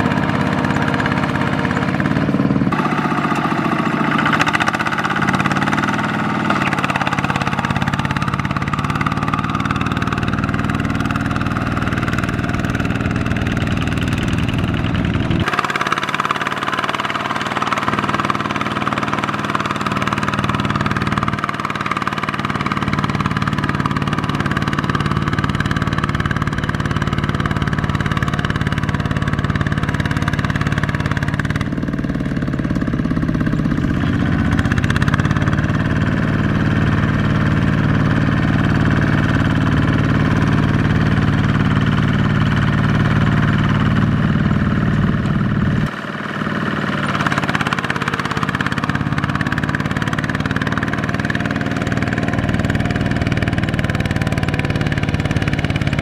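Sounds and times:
diesel power tiller engine running: 0.0 - 56.0.

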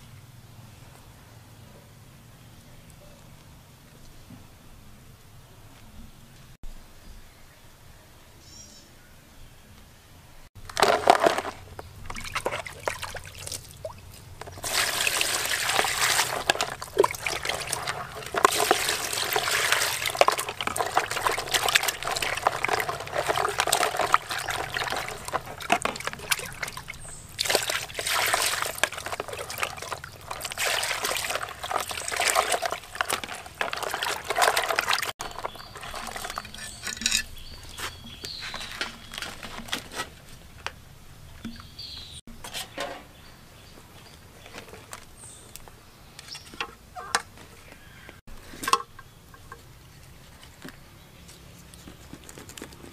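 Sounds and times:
water running and splashing: 12.0 - 37.6.

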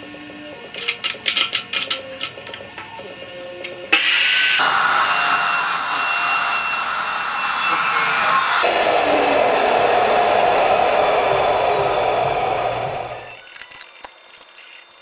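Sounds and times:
chop saw cutting steel: 4.0 - 9.6.

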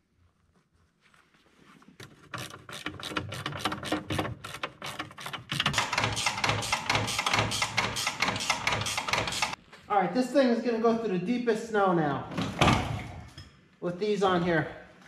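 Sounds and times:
hand tools clicking and clattering: 2.0 - 9.6.

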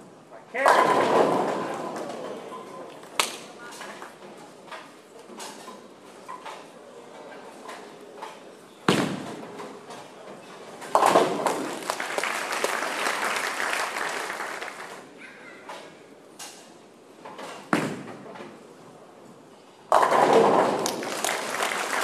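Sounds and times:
bowling ball crashing into pins: 0.6 - 2.2, 8.9 - 9.5, 10.8 - 11.8, 19.9 - 21.4
bowling ball thudding on lane: 10.9 - 11.8, 19.9 - 21.4.

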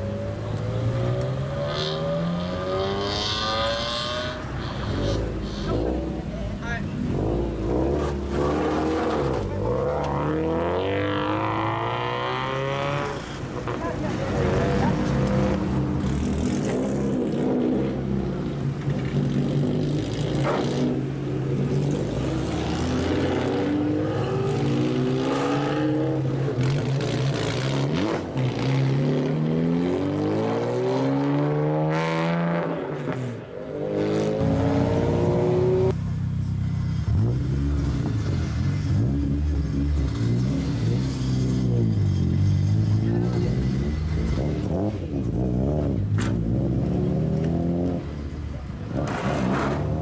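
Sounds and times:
car engines and exhausts: 0.0 - 50.0
car engine revving: 33.8 - 48.1.

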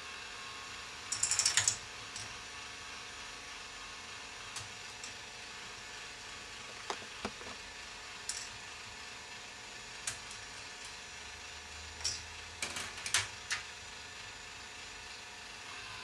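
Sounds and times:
plastic balls clicking on track: 1.1 - 2.3.

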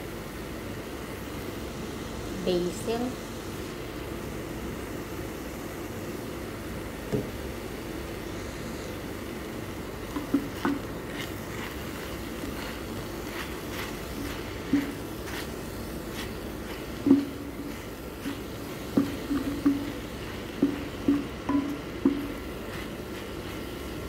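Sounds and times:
steady low hum: 0.0 - 24.0
wooden spatula knocking on pan: 10.1 - 10.8, 17.0 - 17.5, 18.9 - 22.4.

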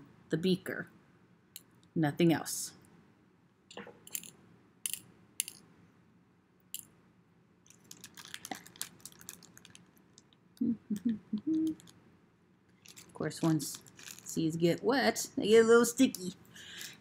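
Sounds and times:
plastic bag crinkling: 7.6 - 10.4, 11.5 - 12.0, 12.7 - 14.6, 16.7 - 17.0.

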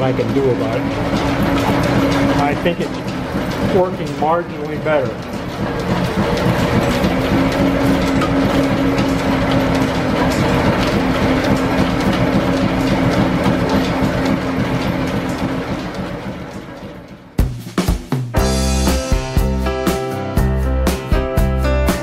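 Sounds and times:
lathe humming and clattering: 0.0 - 17.4.

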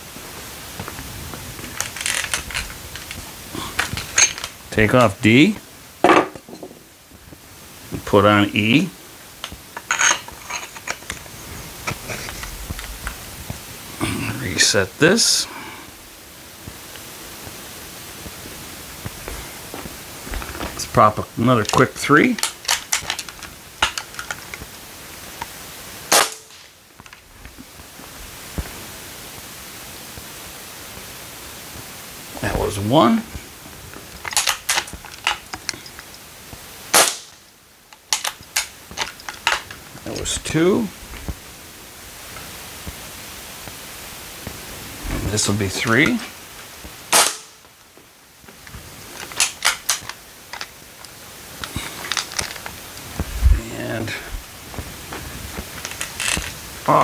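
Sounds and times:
suppressed air rifle shot: 36.9 - 37.3, 47.1 - 47.6.

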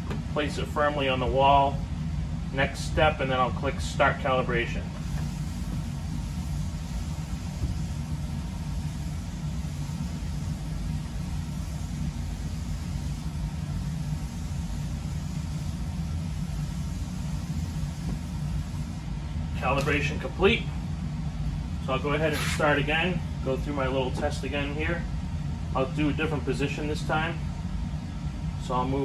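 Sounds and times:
low mechanical hum: 0.0 - 29.0
faint hiss: 2.6 - 24.8.

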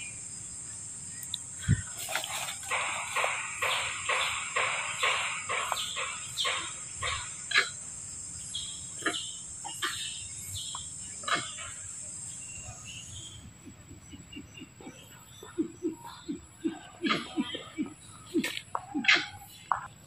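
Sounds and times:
insects droning: 0.0 - 20.0
rhythmic rustling: 1.6 - 6.8.

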